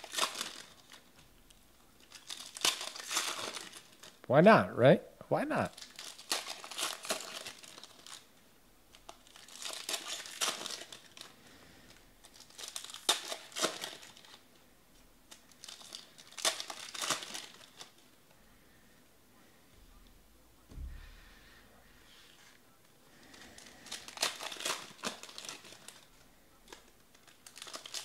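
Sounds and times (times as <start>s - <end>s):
foil wrappers crinkling and tearing: 0.0s - 4.2s, 5.7s - 14.6s, 15.2s - 18.1s, 23.1s - 28.0s.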